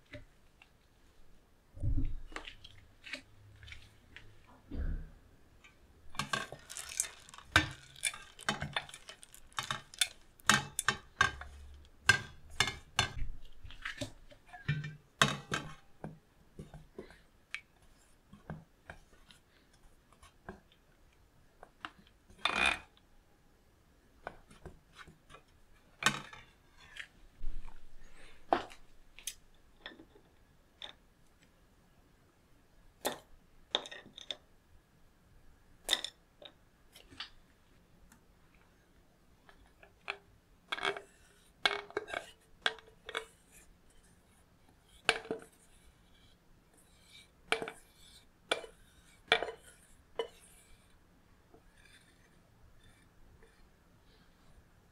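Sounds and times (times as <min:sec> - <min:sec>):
spatula scraping chocolate in bowl: 0:40.8 - 0:51.0.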